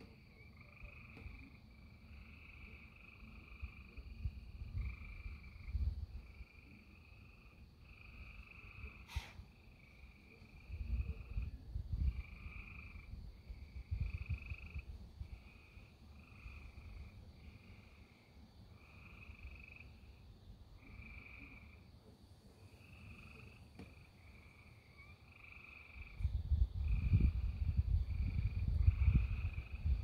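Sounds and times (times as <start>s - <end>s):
frogs trilling: 0.0s - 22.0s, 22.6s - 30.0s
gusty low rumbling: 26.2s - 30.0s.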